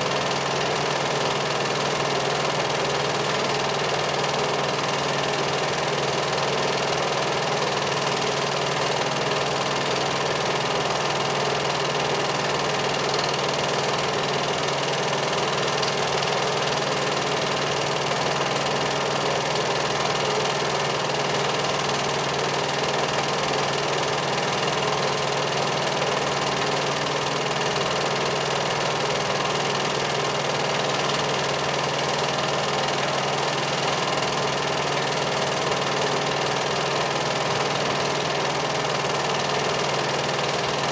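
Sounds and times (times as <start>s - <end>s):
film projector whirring and clattering: 0.0s - 40.9s.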